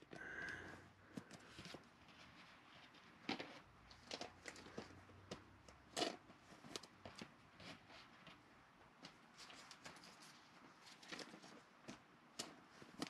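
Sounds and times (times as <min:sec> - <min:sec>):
cards rustling and clicking: 0:09.0 - 0:13.0.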